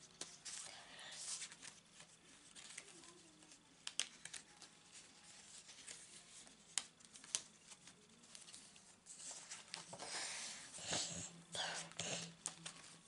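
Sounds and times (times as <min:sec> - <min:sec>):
paper rustling: 0:00.1 - 0:11.0, 0:11.7 - 0:13.0
cards clicking and tapping: 0:03.8 - 0:04.6.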